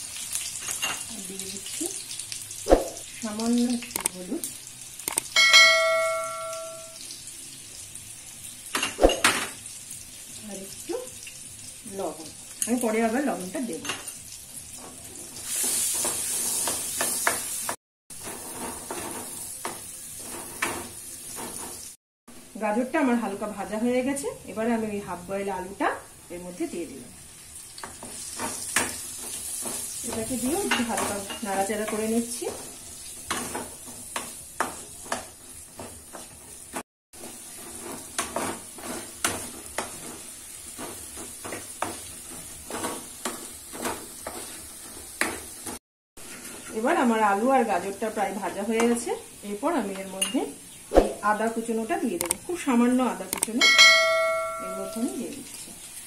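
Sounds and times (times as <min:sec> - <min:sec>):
carrots sizzling in a pan: 0:00.0 - 0:05.2, 0:05.8 - 0:56.0
spoon scraping and knocking pan: 0:37.6 - 0:46.8.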